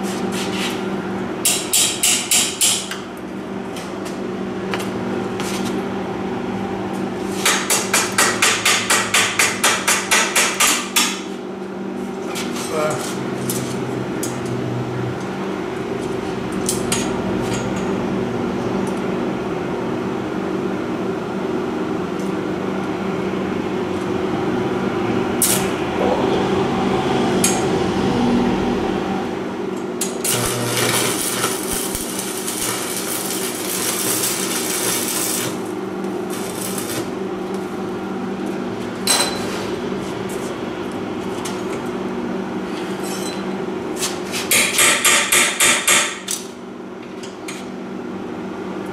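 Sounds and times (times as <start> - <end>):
steady low hum: 11.3 - 39.1
welding arc crackling: 30.0 - 37.8.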